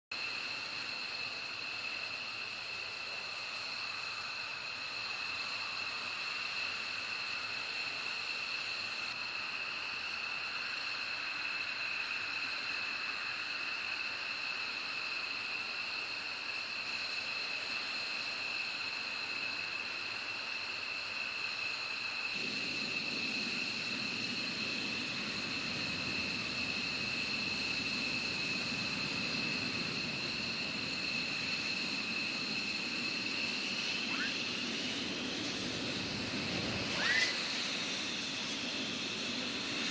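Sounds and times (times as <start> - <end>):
jet engines idling whine: 0.1 - 39.9
jet engine rushing hiss: 15.7 - 39.9
high two-note turbine whine: 22.3 - 39.9.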